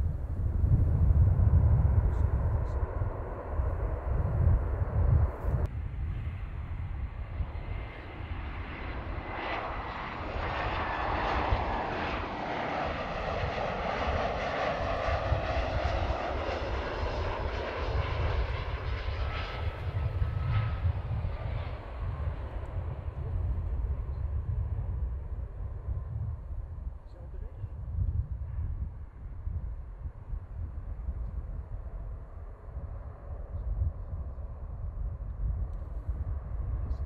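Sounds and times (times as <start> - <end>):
jet airliner flying past: 0.0 - 37.0
low rumble: 0.0 - 37.0.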